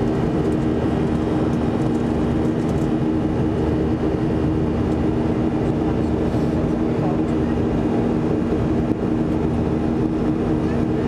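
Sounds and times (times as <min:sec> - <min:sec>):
jet engine cabin drone: 0:00.0 - 0:11.0.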